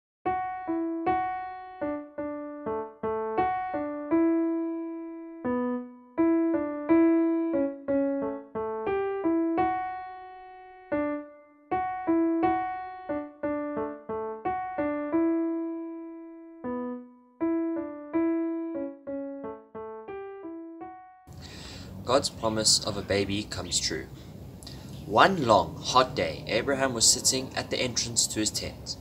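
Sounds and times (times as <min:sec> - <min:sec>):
piano melody: 0:00.2 - 0:29.0.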